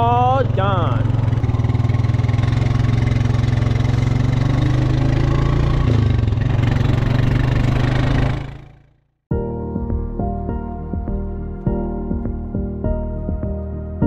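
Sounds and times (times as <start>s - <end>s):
farm vehicle engine running: 0.0s - 9.0s.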